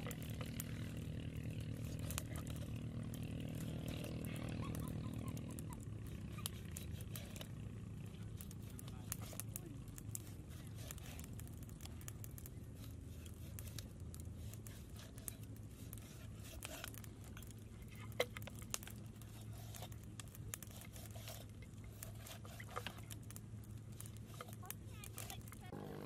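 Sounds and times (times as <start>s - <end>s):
low hum: 0.0s - 26.0s
knife cutting raw chicken: 19.2s - 23.1s.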